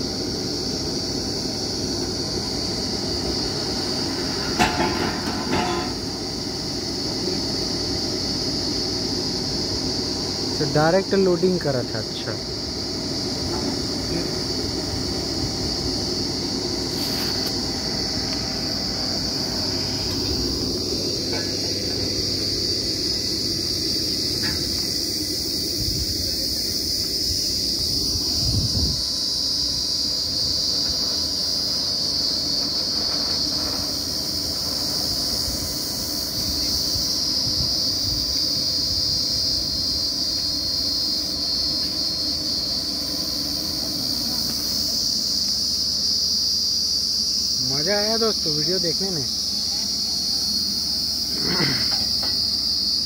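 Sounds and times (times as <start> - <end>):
drilling rig engine rumble: 0.0 - 53.0
high-pitched insect drone: 0.0 - 53.0
loud thud: 4.5 - 6.0.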